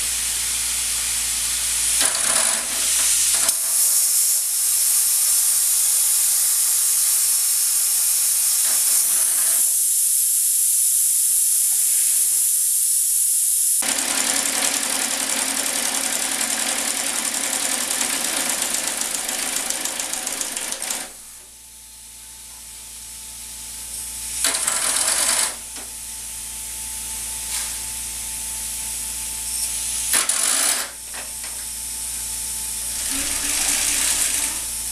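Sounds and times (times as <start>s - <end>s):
steam hiss: 2.8s - 13.8s.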